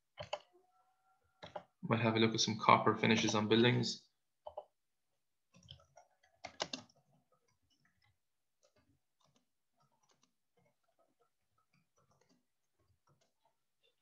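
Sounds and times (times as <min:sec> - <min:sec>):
typing on computer keyboard: 0:00.1 - 0:00.5, 0:05.5 - 0:13.6.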